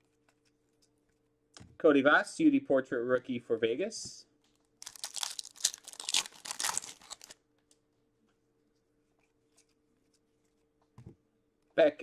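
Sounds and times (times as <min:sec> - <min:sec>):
foil pack tearing and crinkling: 0:04.8 - 0:07.4.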